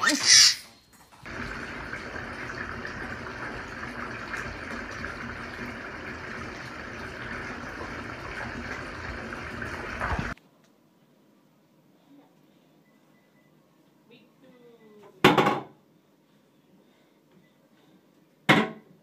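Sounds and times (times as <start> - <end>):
tap water filling bathtub: 1.2 - 10.4.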